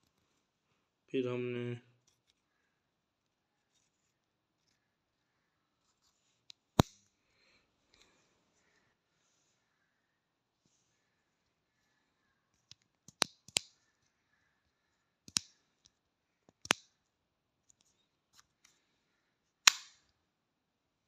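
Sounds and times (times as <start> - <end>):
lancing pen plastic clicks: 12.5 - 14.0, 15.2 - 17.0, 19.6 - 20.1.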